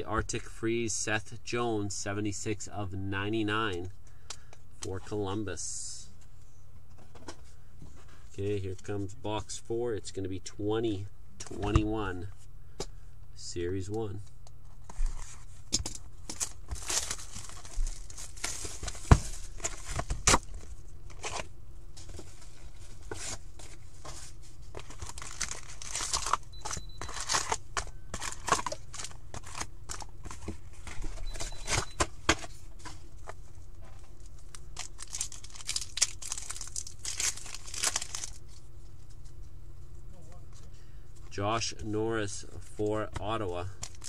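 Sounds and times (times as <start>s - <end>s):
foil packs crinkling: 16.2s - 21.5s, 22.1s - 31.9s, 34.1s - 38.6s, 43.3s - 44.0s
card packs being torn open: 16.3s - 21.5s, 24.7s - 31.8s, 34.5s - 38.4s, 43.8s - 44.0s.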